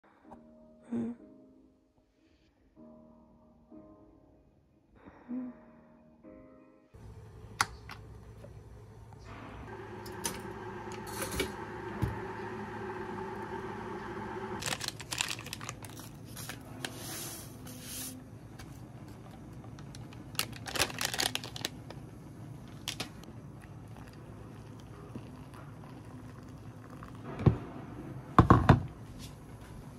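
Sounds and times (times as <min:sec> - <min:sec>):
powder pouring into mug: 0:14.4 - 0:18.1, 0:22.8 - 0:27.2
foil sachet tearing and crinkling: 0:14.6 - 0:17.1, 0:19.9 - 0:22.0.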